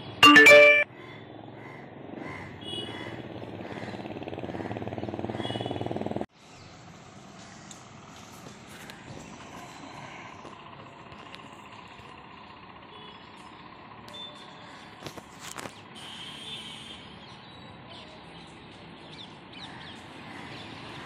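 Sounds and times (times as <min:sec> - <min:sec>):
street background: 0:00.0 - 0:21.0
motorcycle engine approaching: 0:01.2 - 0:16.0
vehicle horn honking: 0:16.0 - 0:17.1.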